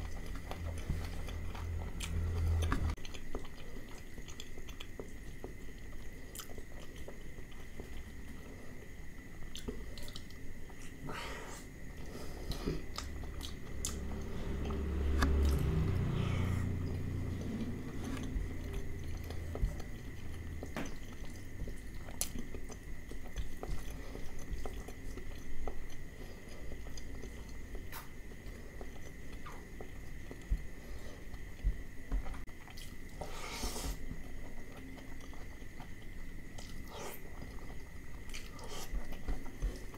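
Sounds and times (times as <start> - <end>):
close-miked chewing: 0.0 - 11.0, 11.8 - 33.2, 34.0 - 39.9.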